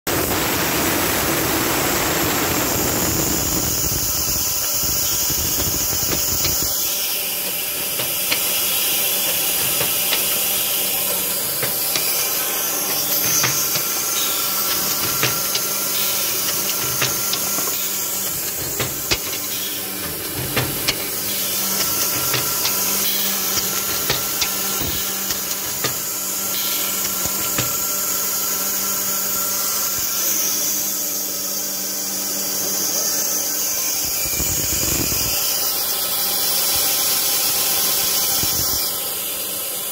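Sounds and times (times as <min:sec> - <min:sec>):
drill motors humming: 0:00.2 - 0:39.9
air cylinders clacking: 0:03.6 - 0:28.0.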